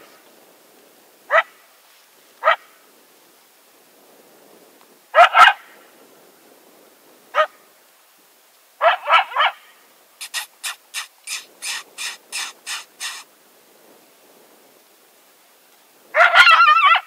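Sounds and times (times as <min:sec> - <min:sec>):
coyote barking: 0:10.2 - 0:13.3.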